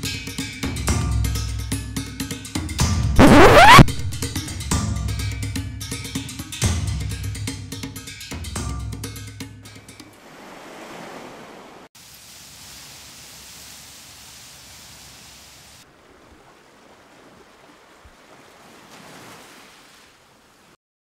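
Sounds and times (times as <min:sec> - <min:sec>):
waves washing: 0:10.0 - 0:20.8.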